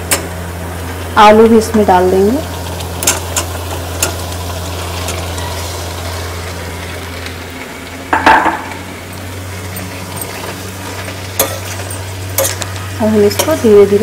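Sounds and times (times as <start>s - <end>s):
low sizzle: 0.0s - 14.0s
clatter against the pan: 8.1s - 8.8s.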